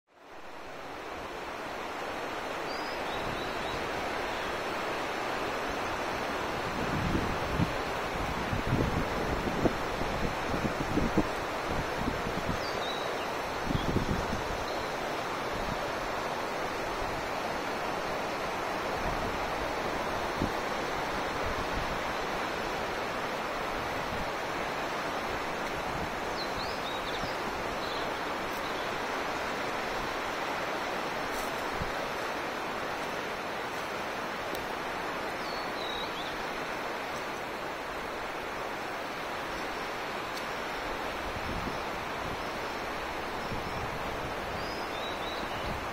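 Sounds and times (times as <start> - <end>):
river rushing over rocks: 0.2 - 45.9.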